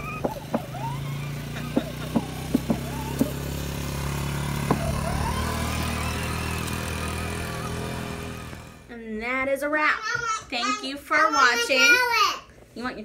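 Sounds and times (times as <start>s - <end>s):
quad bike engine running: 0.0s - 8.9s.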